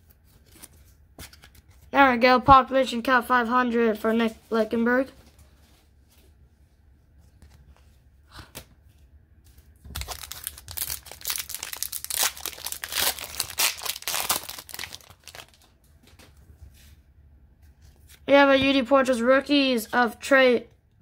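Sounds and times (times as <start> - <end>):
plastic wrapping crinkling: 9.8 - 15.7.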